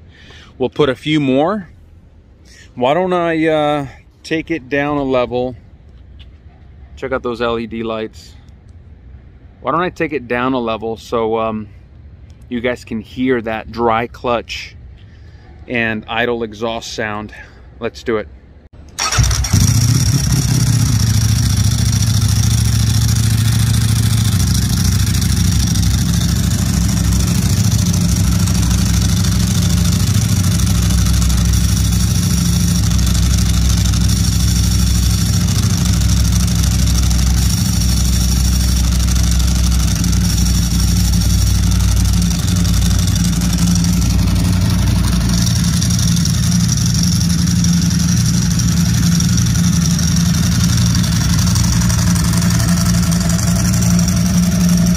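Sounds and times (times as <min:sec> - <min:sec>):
dry clutch rattle: 0:18.9 - 0:54.9
motorcycle engine idling: 0:19.0 - 0:54.9.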